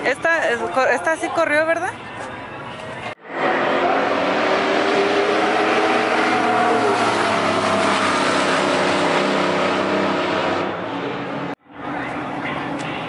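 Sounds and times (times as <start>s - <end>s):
truck engine running hard: 3.2s - 13.0s.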